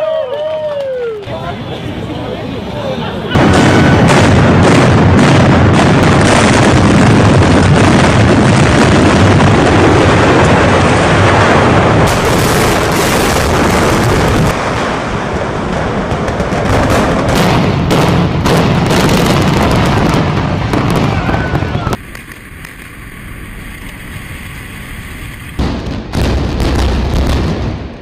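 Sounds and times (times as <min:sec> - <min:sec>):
loud continuous rumble: 0:01.2 - 0:28.0
explosive blasts: 0:03.3 - 0:28.0.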